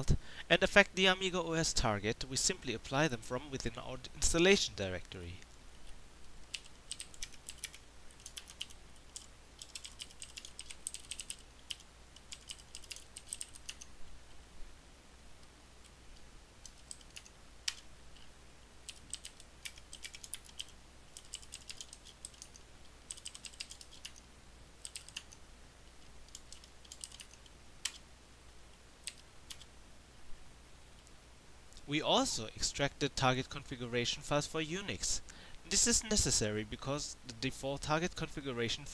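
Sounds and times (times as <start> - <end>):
computer keyboard typing: 6.5 - 13.9, 16.6 - 17.9, 18.8 - 24.2, 24.8 - 25.4, 26.3 - 28.0, 29.0 - 29.7.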